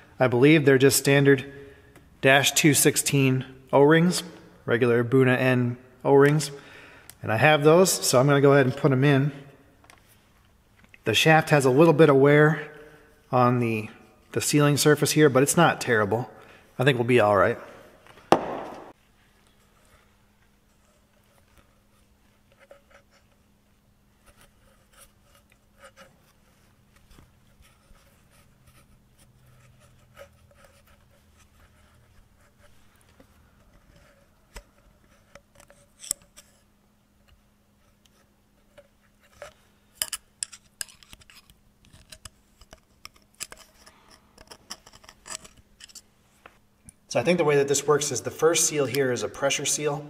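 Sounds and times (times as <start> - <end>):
metal clicks taps and scrapes: 29.6 - 36.6, 37.2 - 47.0.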